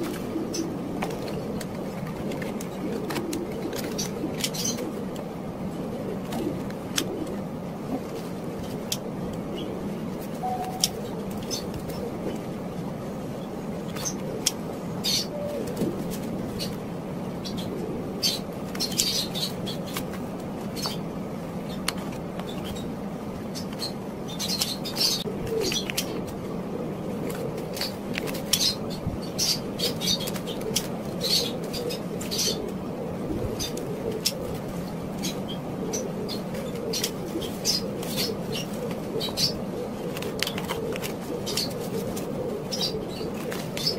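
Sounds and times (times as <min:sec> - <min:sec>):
low background hum: 0:00.0 - 0:43.9
paper rustling and shuffling: 0:40.1 - 0:42.3.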